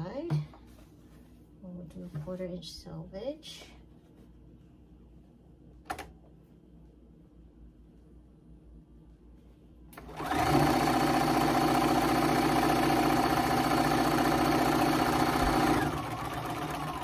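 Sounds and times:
sewing machine stitching: 10.0 - 17.0.

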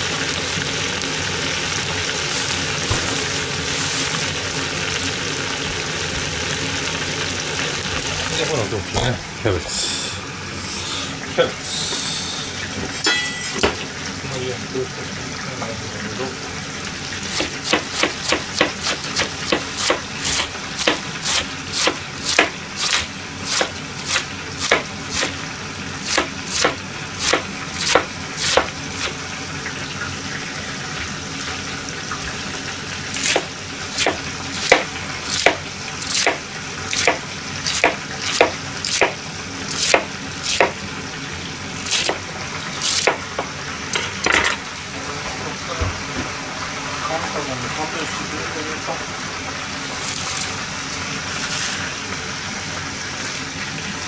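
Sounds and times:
knife chopping cabbage: 17.3 - 25.4, 26.0 - 29.2, 33.2 - 39.2, 39.8 - 40.8, 41.9 - 42.2, 42.8 - 43.5.

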